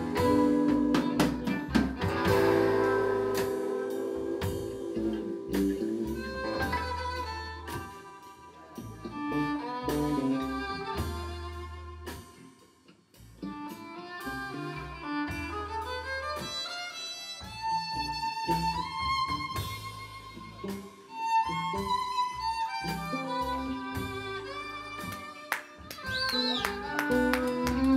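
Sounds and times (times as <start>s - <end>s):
blues band playing: 0.0s - 27.9s.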